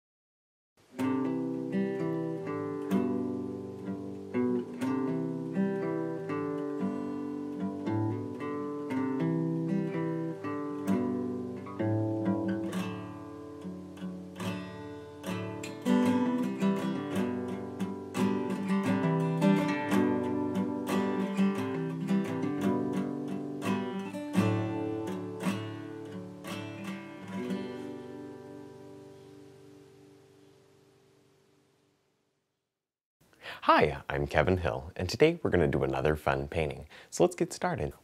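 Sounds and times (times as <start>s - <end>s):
acoustic guitar plucking: 0.8s - 30.9s.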